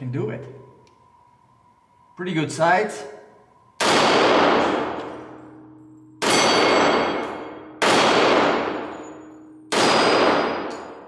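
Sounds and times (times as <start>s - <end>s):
pistol shots echoing: 3.8s - 5.6s, 6.2s - 11.0s.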